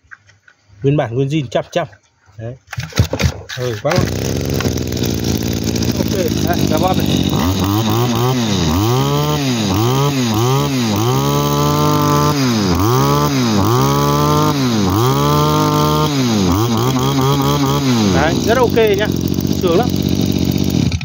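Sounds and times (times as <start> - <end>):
brush cutter engine revving: 2.7 - 21.0.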